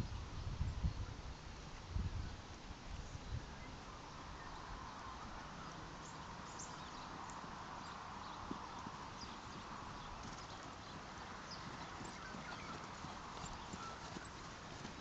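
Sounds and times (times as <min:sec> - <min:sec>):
steady outdoor hiss: 0:00.0 - 0:15.0
faint horse hoofbeats on grass: 0:04.1 - 0:15.0.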